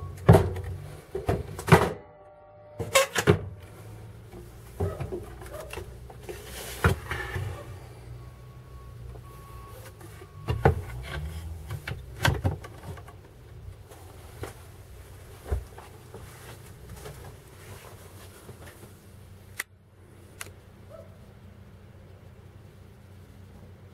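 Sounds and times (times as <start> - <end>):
low steady rumble: 0.0 - 23.9
sharp knocks and thumps: 10.4 - 13.2.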